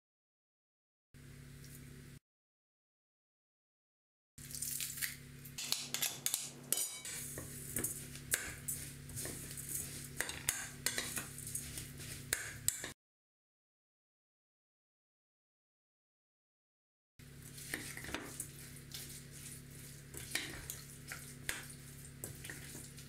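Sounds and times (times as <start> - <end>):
metal spoon scraping glass bowl: 5.6 - 11.9.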